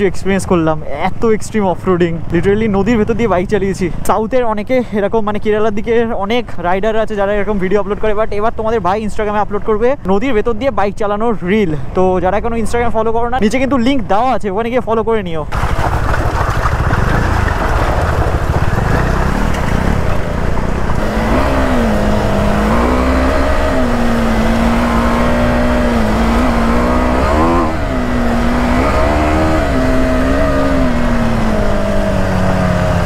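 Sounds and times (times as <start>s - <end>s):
wind and road rumble: 0.0s - 33.0s
motorcycle engine: 15.5s - 33.0s.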